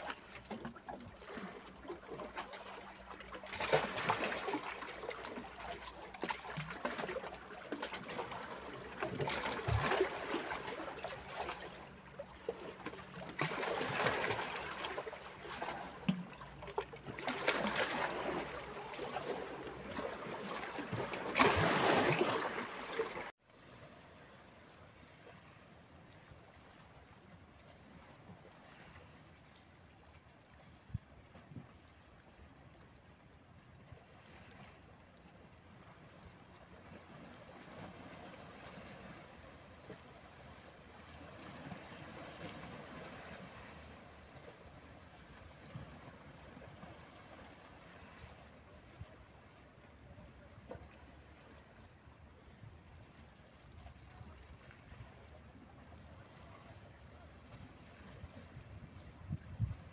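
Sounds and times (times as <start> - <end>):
seawater splashing among rocks: 0.0 - 23.3, 37.1 - 49.0.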